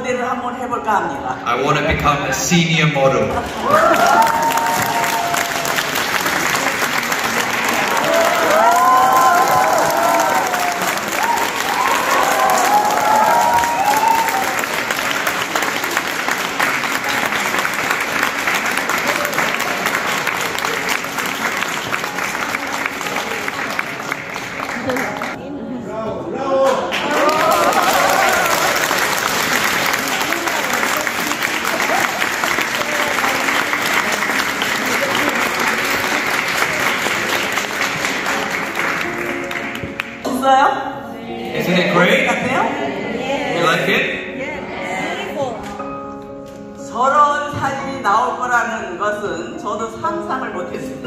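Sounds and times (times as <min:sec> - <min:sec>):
audience applauding: 0:03.2 - 0:25.4, 0:26.6 - 0:40.2.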